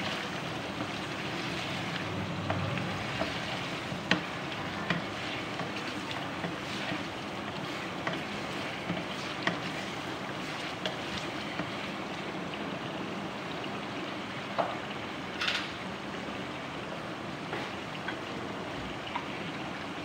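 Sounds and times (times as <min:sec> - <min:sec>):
chicken sizzling in hot oil: 0:00.0 - 0:20.0
wooden spatula knocking pan: 0:02.4 - 0:07.0, 0:07.7 - 0:09.9.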